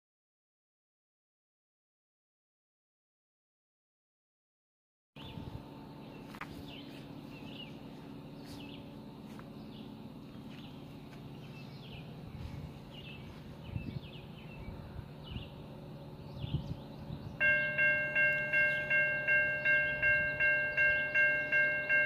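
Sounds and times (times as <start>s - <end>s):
birds chirping faintly: 5.2s - 22.0s
level crossing warning bell: 17.3s - 22.0s.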